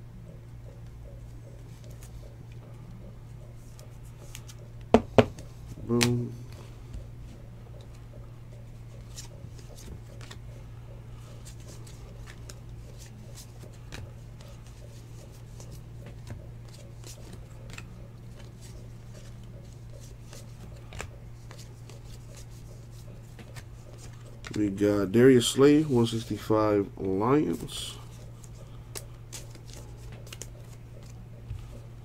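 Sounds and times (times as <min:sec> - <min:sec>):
steady low hum: 0:00.0 - 0:32.0
trading cards flipped by hand: 0:01.5 - 0:02.6, 0:03.6 - 0:06.2, 0:08.7 - 0:10.5, 0:11.2 - 0:24.6, 0:27.5 - 0:31.8.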